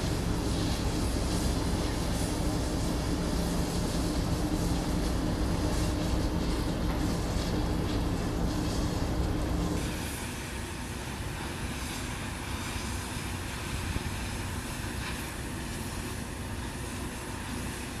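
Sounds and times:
machine hum: 0.0s - 10.0s
cutting torch hissing roar: 0.0s - 18.0s.

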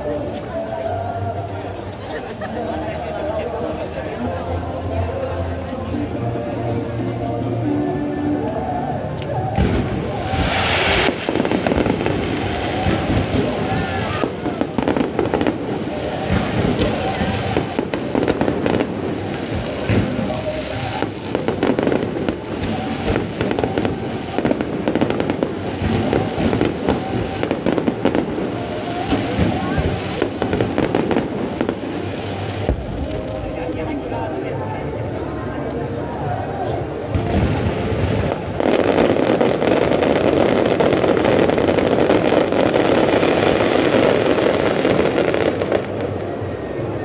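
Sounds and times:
fireworks bangs and crackles: 0.0s - 47.0s.

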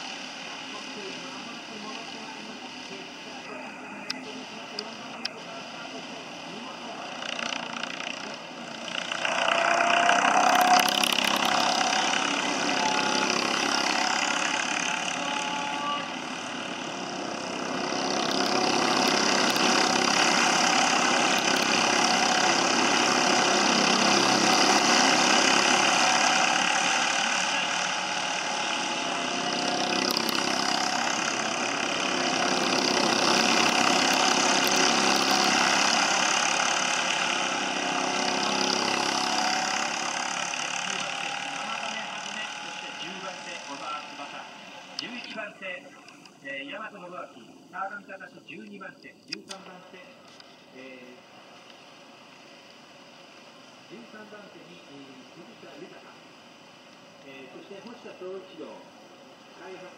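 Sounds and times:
racing kart engines passing: 0.0s - 46.9s.

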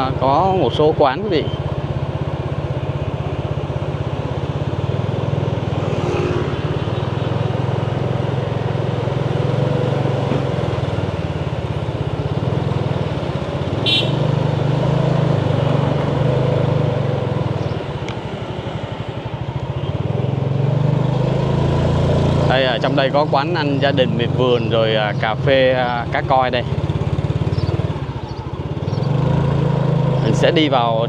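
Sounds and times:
road noise: 0.0s - 31.0s
vehicle engine humming: 0.0s - 31.0s.

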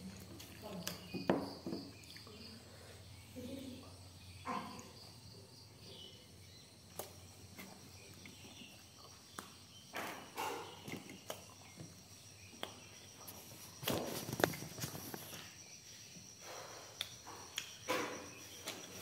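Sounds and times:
insects chirring: 0.0s - 19.0s
knocks and rustles: 13.5s - 15.4s.

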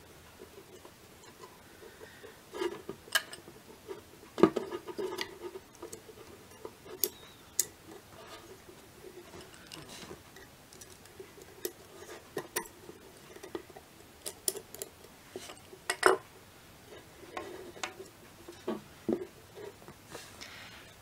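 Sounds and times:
metal parts clicking and clinking: 4.5s - 8.6s, 9.2s - 16.2s.

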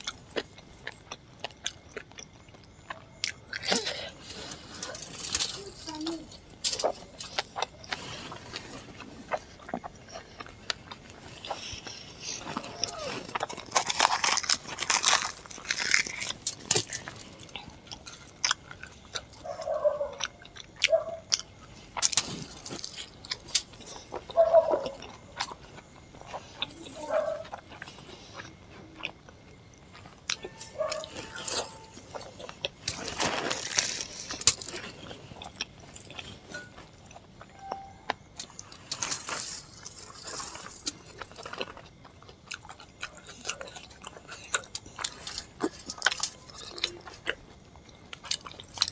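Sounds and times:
chewing and mouth smacks: 0.0s - 4.0s, 6.7s - 48.9s.

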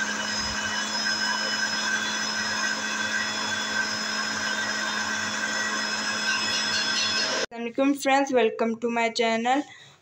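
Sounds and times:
mixer grinder motor humming: 0.0s - 7.5s.

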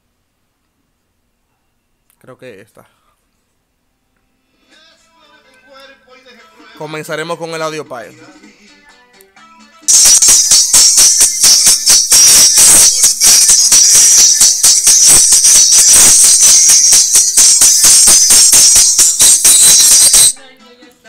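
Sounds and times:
song through tweeter: 9.9s - 20.4s.

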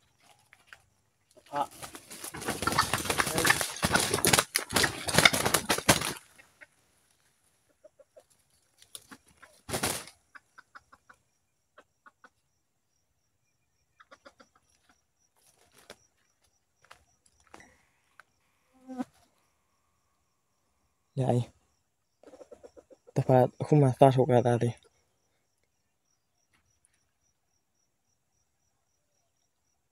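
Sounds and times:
rustling: 0.0s - 7.6s
junglefowl clucking: 1.4s - 6.9s, 7.5s - 12.4s, 13.9s - 16.2s, 22.2s - 23.4s.

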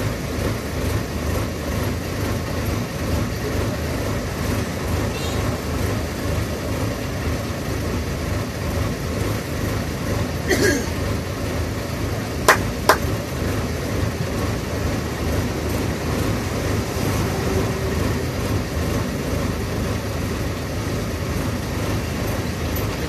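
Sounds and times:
bus engine rumble and road noise: 0.0s - 23.0s
sharp knocks: 12.5s - 13.0s.

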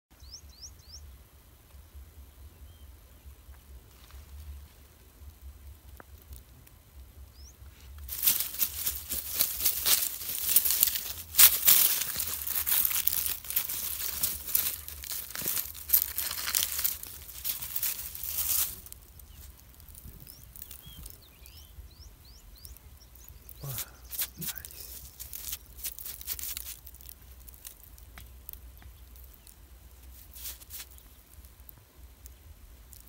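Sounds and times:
dry leaves and soil rustling: 3.7s - 6.5s, 7.4s - 33.0s.

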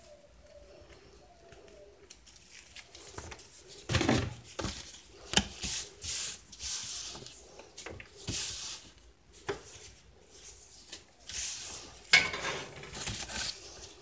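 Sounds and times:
bird cooing: 0.0s - 2.1s
rubbing and rustling handling noises: 0.0s - 14.0s.

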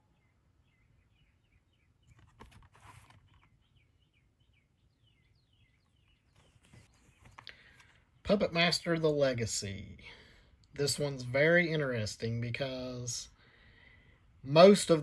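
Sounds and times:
bird chirping faintly: 0.0s - 8.7s
plastic case rustling: 2.0s - 3.6s, 6.1s - 8.0s.

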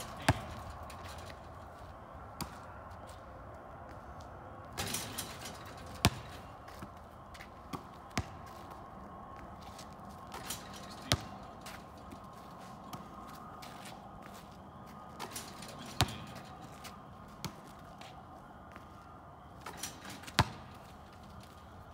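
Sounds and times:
basketball bouncing on asphalt: 0.0s - 2.7s, 4.8s - 8.8s, 9.4s - 12.2s, 12.8s - 14.4s, 15.2s - 18.8s, 19.7s - 21.6s.

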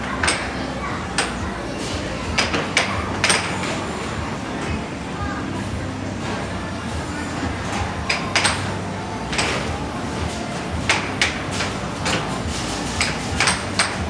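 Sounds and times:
steady background noise: 0.0s - 14.0s
air hockey puck clacking: 0.2s - 0.6s, 2.3s - 3.7s, 8.0s - 8.7s, 10.8s - 12.2s, 12.9s - 14.0s.

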